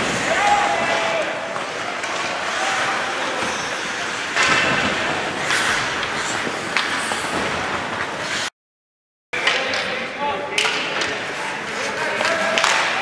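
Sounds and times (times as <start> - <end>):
skates scraping on ice: 0.0 - 8.5, 11.1 - 13.0.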